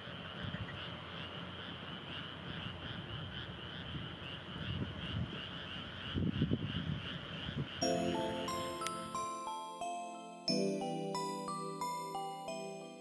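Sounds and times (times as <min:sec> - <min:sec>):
chorus of frogs calling: 0:00.0 - 0:08.8.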